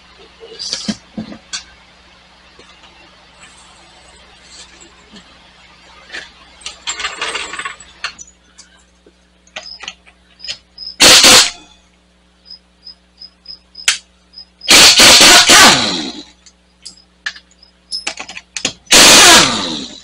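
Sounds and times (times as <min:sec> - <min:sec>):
pneumatic impact wrench hammering: 0:10.4 - 0:11.7, 0:14.6 - 0:16.3, 0:17.9 - 0:20.0
sharp click: 0:13.8 - 0:14.1.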